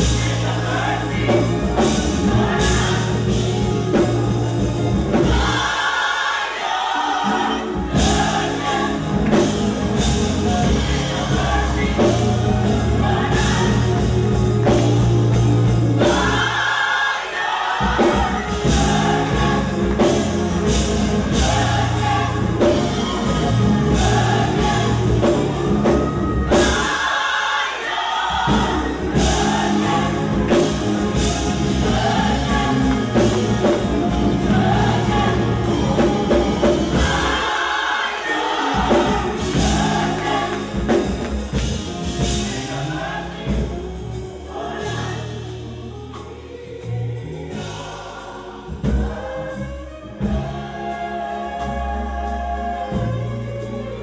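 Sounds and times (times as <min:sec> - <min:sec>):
gospel choir singing: 0:00.0 - 0:54.0
keyboard: 0:00.0 - 0:54.0
steady percussion: 0:00.0 - 0:54.0
heavy bass line: 0:18.0 - 0:26.8, 0:28.4 - 0:37.4.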